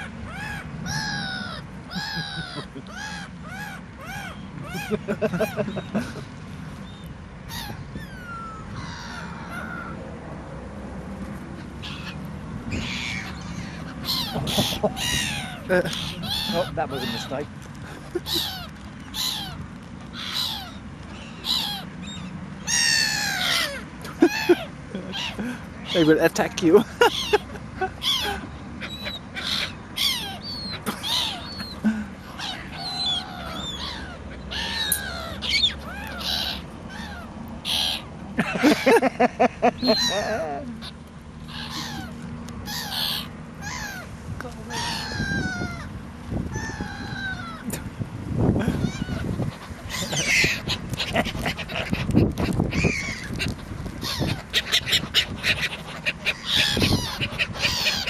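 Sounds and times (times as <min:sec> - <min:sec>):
seagulls calling: 0:00.0 - 0:10.0, 0:11.6 - 0:58.0.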